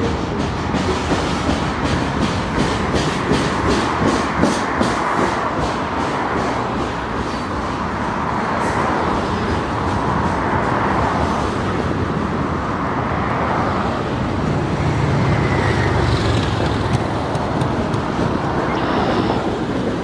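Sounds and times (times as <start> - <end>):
freight train rumbling on rails: 0.0 - 20.0.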